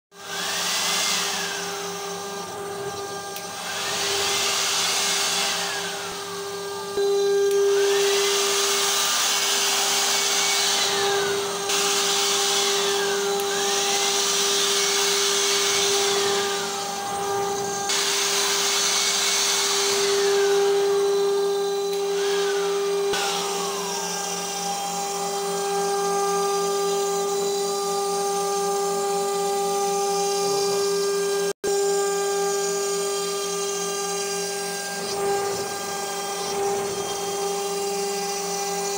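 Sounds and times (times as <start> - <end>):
router spindle humming and whining: 0.1 - 38.9
electric blower hissing: 0.2 - 25.5
axis motors whining: 0.2 - 38.9.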